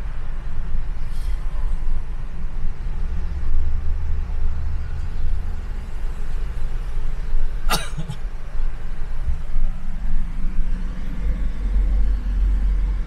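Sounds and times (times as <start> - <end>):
car driving rumble: 0.0 - 13.0.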